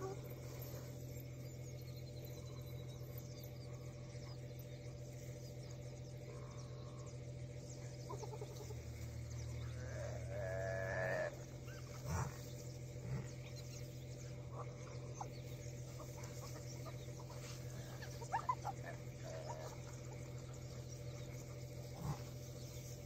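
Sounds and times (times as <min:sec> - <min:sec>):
steady low hum: 0:00.0 - 0:23.0
animal calls: 0:06.2 - 0:23.0.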